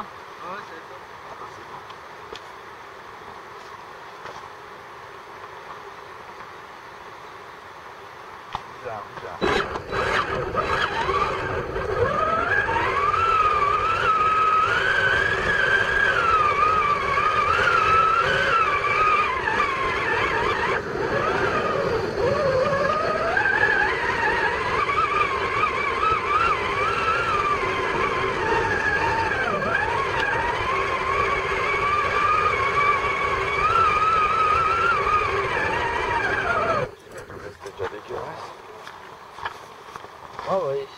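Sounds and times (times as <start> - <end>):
toy truck electric motor whining: 9.4 - 36.9.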